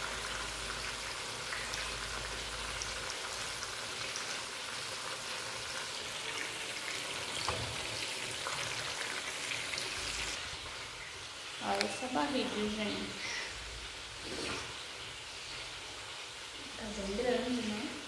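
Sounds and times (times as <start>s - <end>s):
food sizzling in oil: 0.0s - 18.0s
oil crackles and pops: 9.8s - 12.0s.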